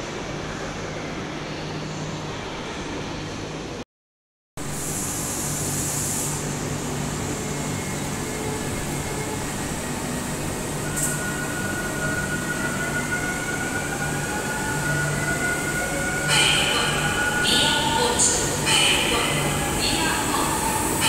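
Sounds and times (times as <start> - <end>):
train equipment humming: 5.8 - 21.0.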